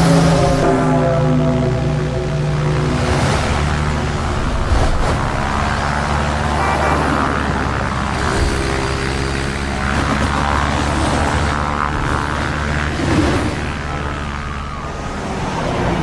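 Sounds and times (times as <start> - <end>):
held musical tones: 0.0 - 3.0
steady low drone: 0.0 - 16.0.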